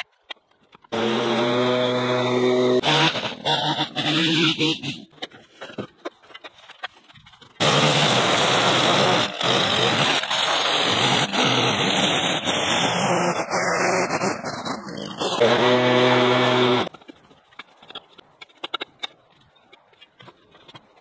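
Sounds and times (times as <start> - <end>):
line trimmer cutting weeds: 0.9 - 5.1, 7.6 - 16.9
rustling debris: 4.8 - 21.0.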